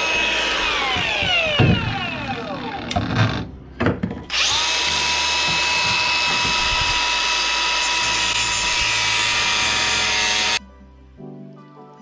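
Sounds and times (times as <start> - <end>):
power tool whining: 0.0 - 3.4, 4.3 - 10.6.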